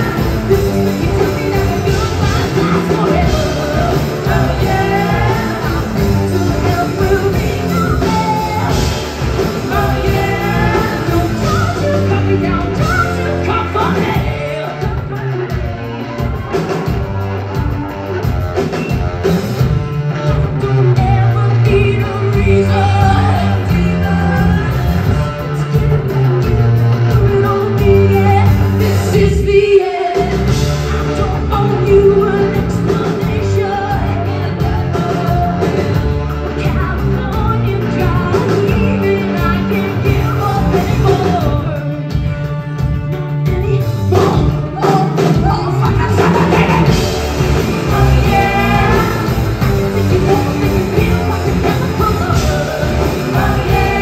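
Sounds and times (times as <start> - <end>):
woman singing: 0.0 - 16.2, 20.3 - 42.3, 43.3 - 54.0
live rock band playing: 0.0 - 54.0.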